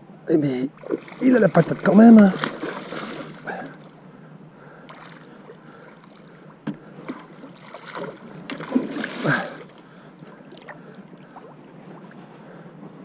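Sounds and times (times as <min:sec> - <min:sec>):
fish splashing in water: 0:00.8 - 0:03.9, 0:07.0 - 0:11.6.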